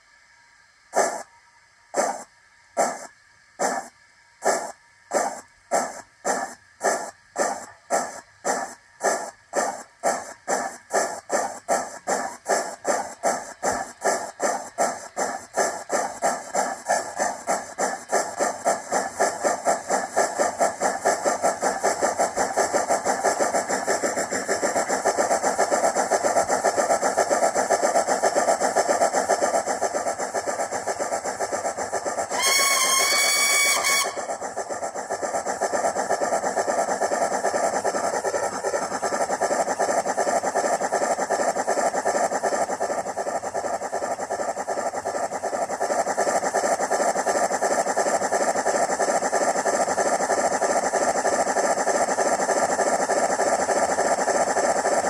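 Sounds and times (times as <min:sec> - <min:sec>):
steam locomotive exhaust chuffs: 0:00.8 - 0:55.0
steam whistle: 0:32.3 - 0:34.3.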